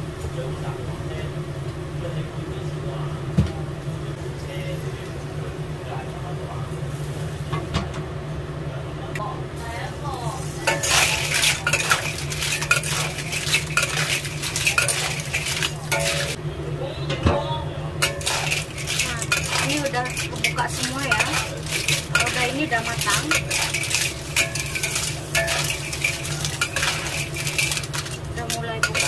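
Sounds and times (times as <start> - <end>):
clam shells clattering in pan: 10.6 - 16.4, 18.0 - 29.0
metal spatula scraping a wok: 10.6 - 16.4, 18.0 - 29.0.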